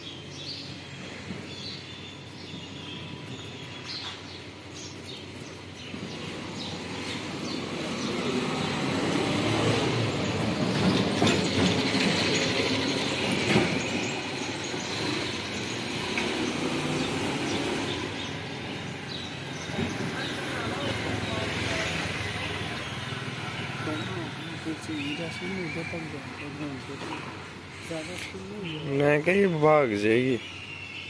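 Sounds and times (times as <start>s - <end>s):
passing vehicle rumble: 5.8s - 30.3s.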